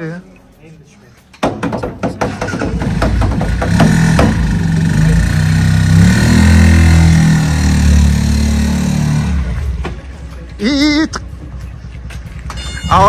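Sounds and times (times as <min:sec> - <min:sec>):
knocks: 0:01.4 - 0:04.6
motor tricycle engine revving: 0:02.3 - 0:13.0.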